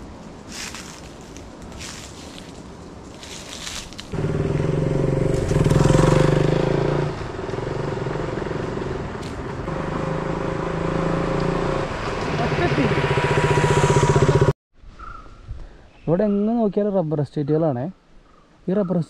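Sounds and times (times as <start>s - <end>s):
motorcycle engine: 4.2s - 14.6s.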